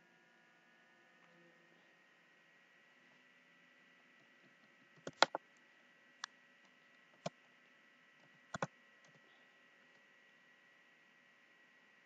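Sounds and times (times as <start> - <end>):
faint steady hum: 0.0 - 12.0
keyboard keystroke clicks: 5.0 - 5.4, 8.5 - 9.2.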